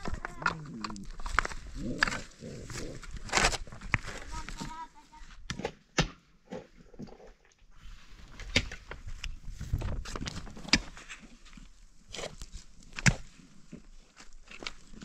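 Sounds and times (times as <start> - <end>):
pickaxe striking stony earth: 5.4 - 6.7, 10.0 - 11.2, 12.1 - 13.4.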